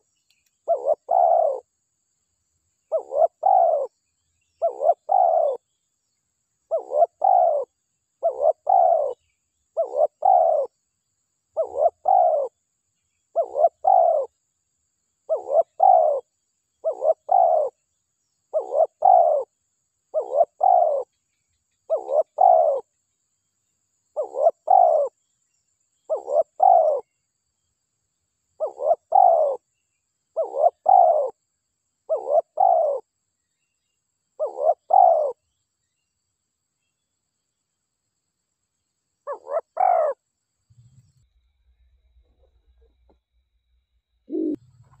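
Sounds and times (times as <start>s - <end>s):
dove cooing: 0.6s - 1.7s, 2.9s - 4.0s, 4.6s - 5.6s, 6.7s - 9.2s, 9.8s - 10.7s, 11.6s - 12.6s, 13.3s - 14.3s, 15.3s - 17.8s, 18.5s - 19.5s, 20.1s - 21.1s, 21.9s - 22.9s, 24.2s - 25.2s, 26.1s - 27.1s, 28.6s - 29.6s, 30.4s - 31.4s, 32.1s - 33.0s, 34.4s - 35.4s, 39.3s - 40.2s, 44.3s - 44.6s.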